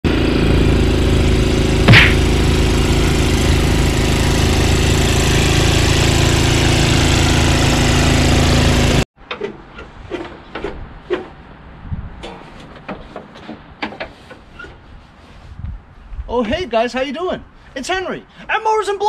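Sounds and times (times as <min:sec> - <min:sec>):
snowblower engine running: 0:00.1 - 0:09.1.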